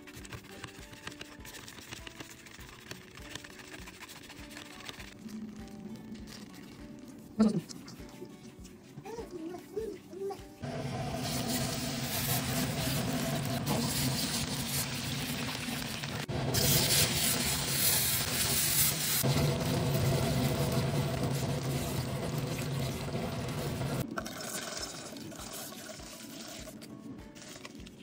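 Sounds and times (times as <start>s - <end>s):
hot oil sizzling and bubbling: 10.6s - 26.7s
wooden spatula scraping a wok: 11.2s - 15.6s.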